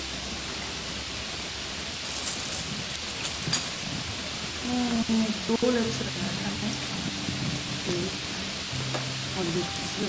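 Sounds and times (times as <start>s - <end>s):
heavy rain hissing: 0.0s - 10.0s
plastic bag crinkling: 2.0s - 4.6s.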